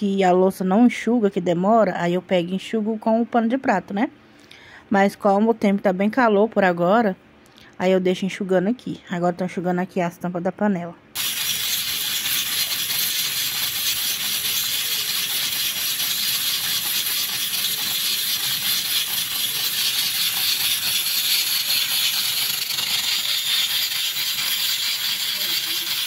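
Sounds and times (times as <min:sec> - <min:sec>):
electric fan running: 0:11.0 - 0:26.0.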